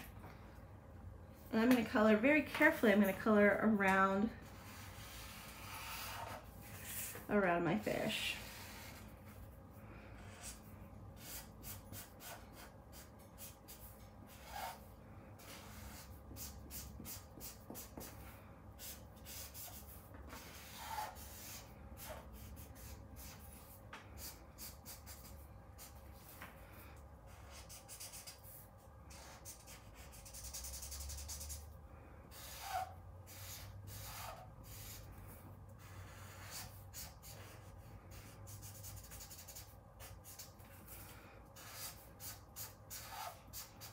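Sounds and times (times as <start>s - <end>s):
marker scratching on paper: 4.5s - 7.3s, 8.0s - 9.5s, 10.2s - 26.5s, 27.3s - 43.9s.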